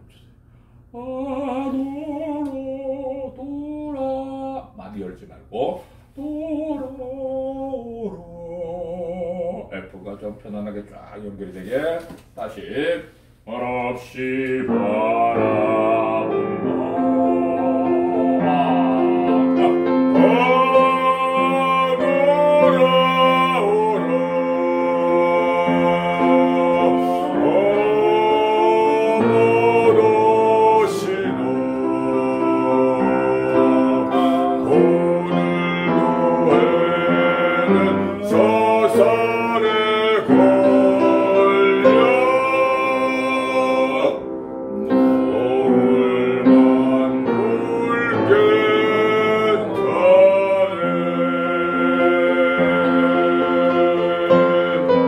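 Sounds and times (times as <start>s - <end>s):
man singing classical song: 0.9s - 5.0s, 5.6s - 10.0s, 13.4s - 55.0s
piano accompaniment: 14.2s - 55.0s.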